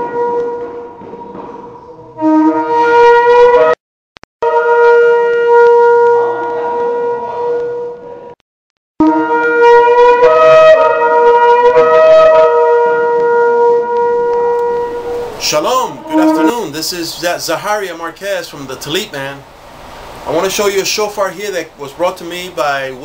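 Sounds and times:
shofar blasts: 0.0 - 3.8, 4.4 - 8.4, 9.0 - 19.4.

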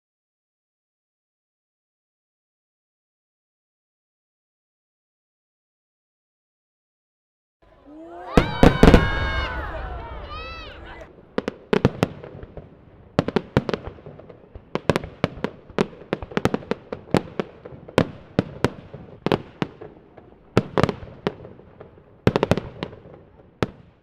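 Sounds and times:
fireworks bangs: 7.8 - 24.0.

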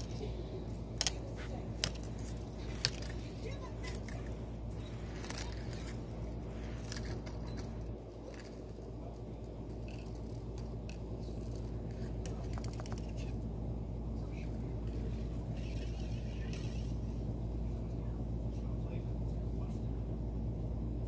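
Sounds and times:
cat toys clicking and rattling: 0.0 - 13.4
steady low hum: 0.0 - 21.0.

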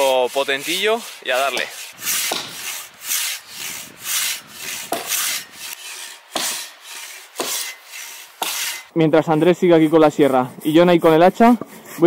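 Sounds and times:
pull saw cutting log: 0.0 - 8.9, 9.5 - 12.0
short sharp knocks: 1.5 - 2.6.

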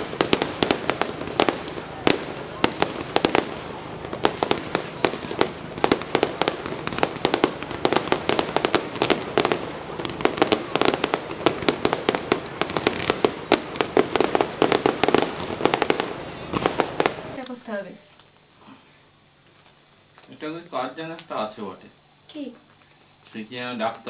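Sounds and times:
fireworks bangs and crackles: 0.0 - 17.5.

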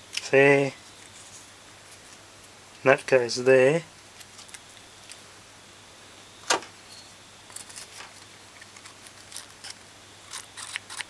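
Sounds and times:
small parts clicking: 7.5 - 11.0.

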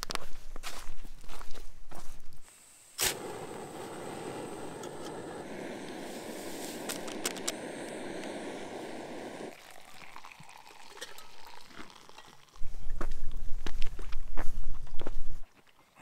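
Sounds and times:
stove burner hissing: 1.9 - 15.4
water pouring into mug: 7.2 - 13.4.

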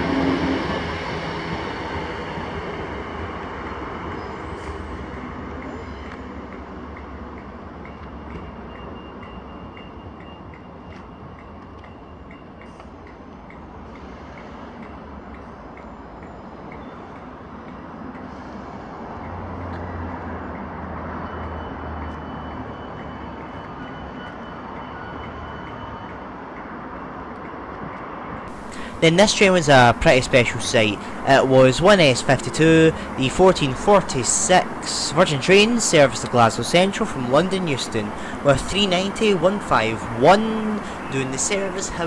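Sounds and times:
electric train pulling away: 0.0 - 6.9, 28.5 - 42.0.

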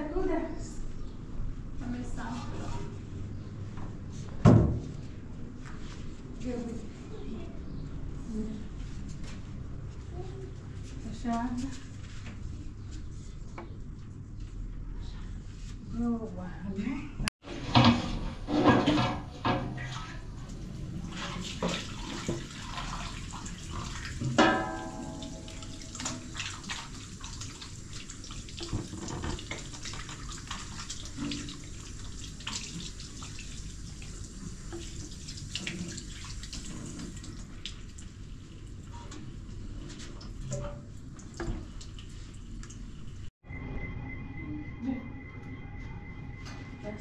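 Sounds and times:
tap water running into basin: 18.9 - 43.3
metal tray ringing when struck: 24.4 - 26.2.

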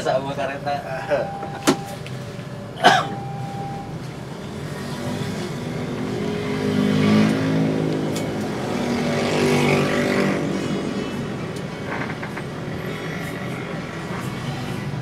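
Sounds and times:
vehicles accelerating past: 3.1 - 15.0.

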